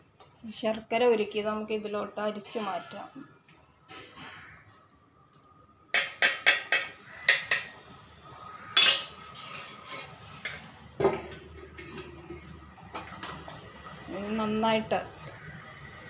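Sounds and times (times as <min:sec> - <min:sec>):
metal kitchenware clinking: 0:08.8 - 0:12.2.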